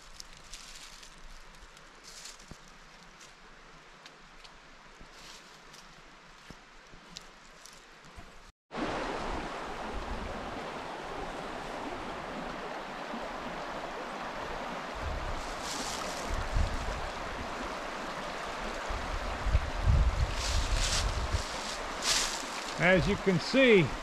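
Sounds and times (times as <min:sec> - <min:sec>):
creek water rushing over stones: 0:08.7 - 0:24.0
wind buffeting microphone: 0:14.9 - 0:17.8, 0:18.6 - 0:23.3.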